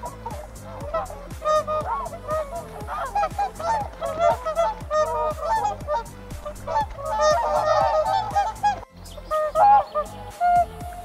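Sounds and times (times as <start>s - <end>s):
background music with steady beat: 0.0s - 11.0s
geese honking: 0.0s - 11.0s.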